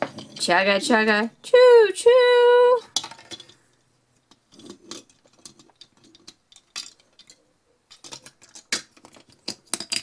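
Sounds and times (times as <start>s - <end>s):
plastic toy blocks clicking: 4.3s - 10.0s.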